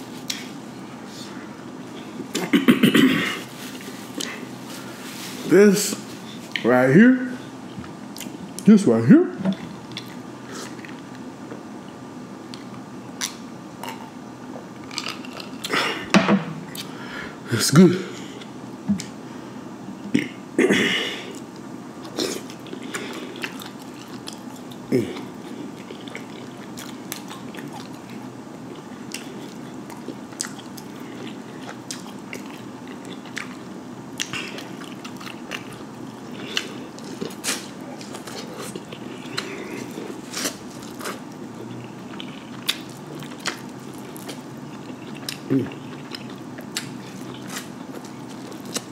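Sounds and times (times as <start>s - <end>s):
wet chewing: 9.5s - 11.1s, 22.0s - 48.9s.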